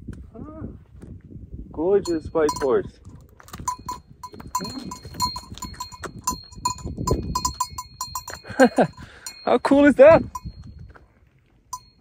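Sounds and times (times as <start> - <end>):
horse collar bell clanking: 2.0 - 11.0, 11.7 - 12.0.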